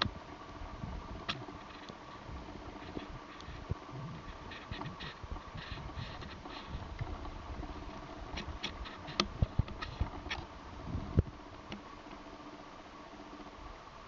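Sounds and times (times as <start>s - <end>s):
light scratching taps: 2.8s - 7.1s, 8.4s - 10.4s.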